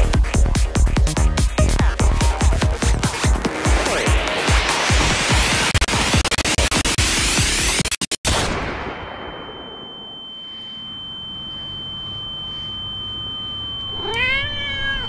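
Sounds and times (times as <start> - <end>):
music: 0.0 - 8.0
high-pitched ringing tone: 8.8 - 15.0
cat meowing: 13.9 - 15.0.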